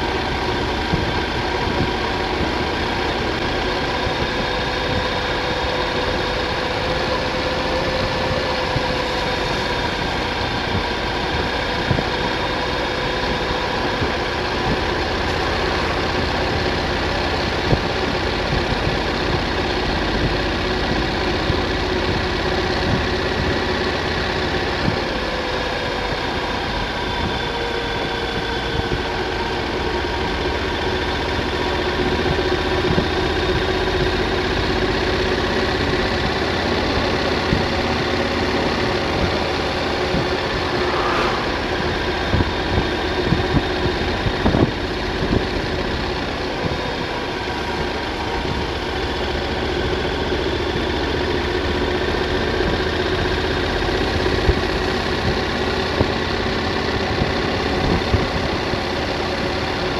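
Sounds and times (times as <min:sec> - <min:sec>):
motorcycle engine cruising: 0:00.0 - 0:59.9
wind rushing: 0:39.1 - 0:44.7.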